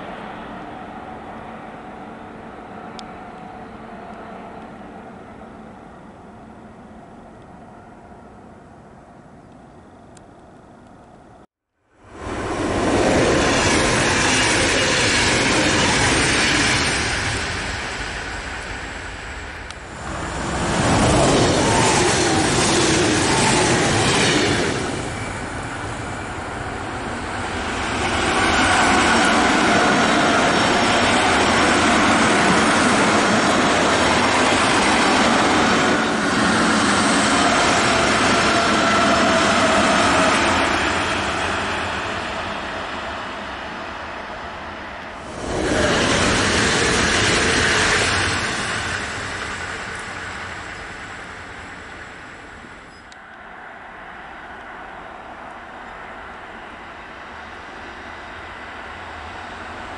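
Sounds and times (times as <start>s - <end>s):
electric train passing: 0.0s - 59.9s.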